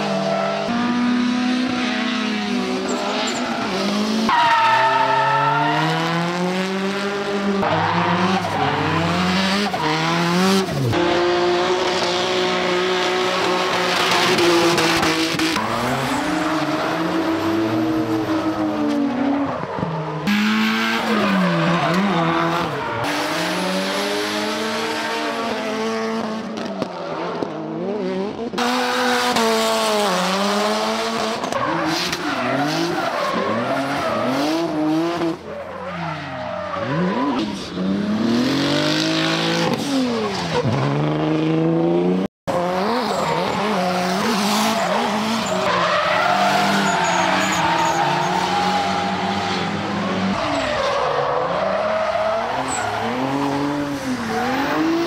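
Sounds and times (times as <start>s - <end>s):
car engines revving: 0.0s - 55.0s
tyres squealing: 44.6s - 49.7s.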